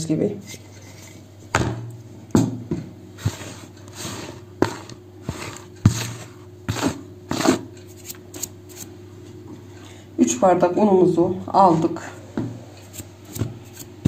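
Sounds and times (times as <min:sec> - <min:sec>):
fingers rustling through flour: 0:03.2 - 0:08.9, 0:12.8 - 0:14.0.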